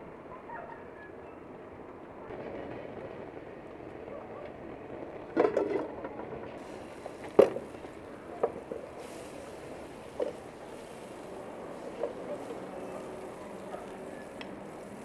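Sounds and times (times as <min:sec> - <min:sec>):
steady background hiss: 0:06.5 - 0:15.0.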